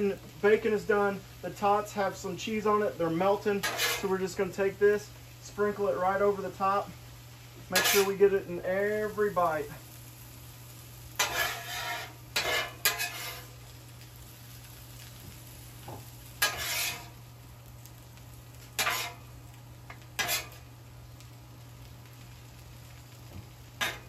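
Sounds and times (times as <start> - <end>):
metal spatula scraping griddle: 3.4 - 4.3, 7.7 - 8.3, 11.1 - 13.7, 16.4 - 17.2, 18.6 - 19.3, 19.9 - 20.7, 23.8 - 24.0.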